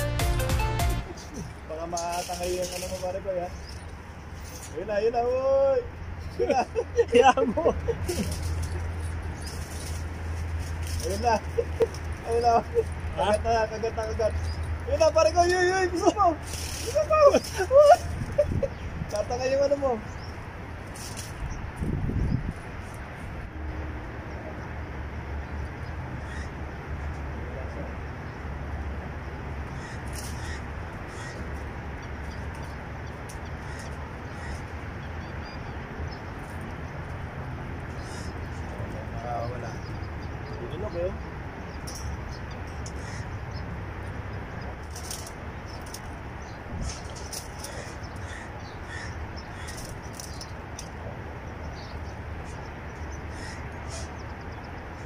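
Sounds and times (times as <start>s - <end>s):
low outdoor rumble: 0.0s - 55.0s
short high bird calls: 29.7s - 32.8s, 45.0s - 50.6s.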